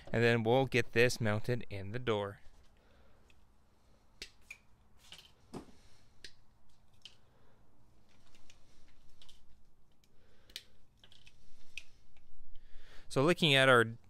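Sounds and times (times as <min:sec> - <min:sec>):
plastic tabs snapping: 0:09.2 - 0:12.3.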